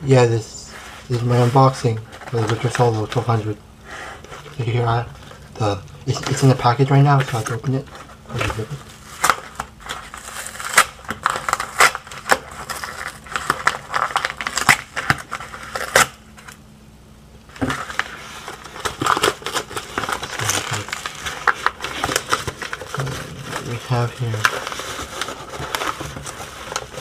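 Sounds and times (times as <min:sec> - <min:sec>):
paper envelope tearing: 0:06.1 - 0:16.6, 0:17.6 - 0:27.0.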